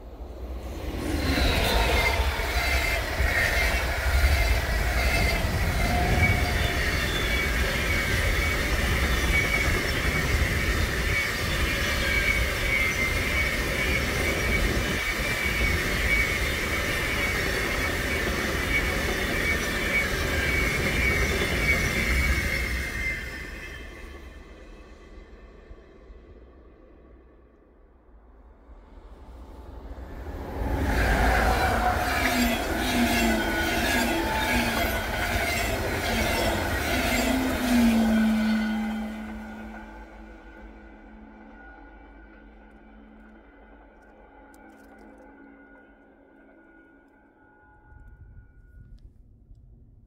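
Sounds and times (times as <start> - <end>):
train wheels rumbling on rail: 0.0 - 24.6, 29.2 - 45.5
high wheel squeal: 0.6 - 24.3, 30.2 - 42.4.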